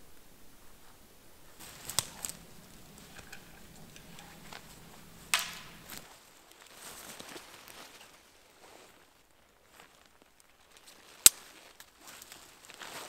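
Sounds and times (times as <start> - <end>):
tarp rustling: 1.4 - 13.0
footsteps on forest floor: 1.5 - 6.0, 9.7 - 13.0
tarp snapping taut: 1.6 - 6.0.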